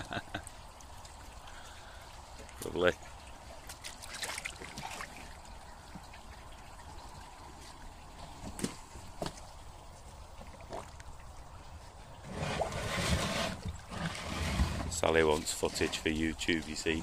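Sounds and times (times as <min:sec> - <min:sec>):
water trickling and splashing: 0:00.0 - 0:17.0
sharp splashes or knocks: 0:03.6 - 0:05.4.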